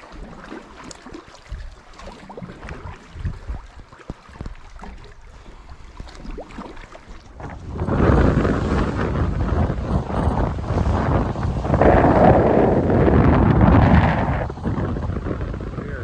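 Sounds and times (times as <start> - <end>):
water lapping against hull and rocks: 0.0 - 16.0
wind buffeting microphone: 1.5 - 4.8, 7.2 - 16.0.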